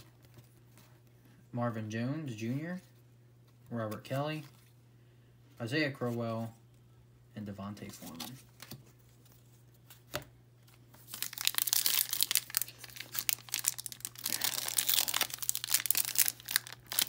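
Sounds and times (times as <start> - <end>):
foil wrapper crinkling: 11.0 - 17.0.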